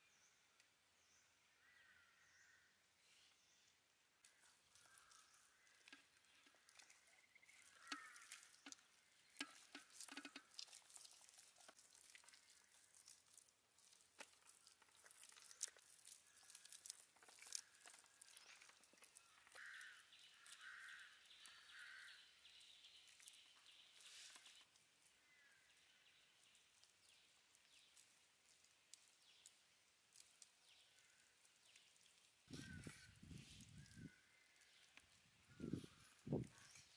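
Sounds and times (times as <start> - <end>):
hands squelching paste on fish: 4.2 - 25.2.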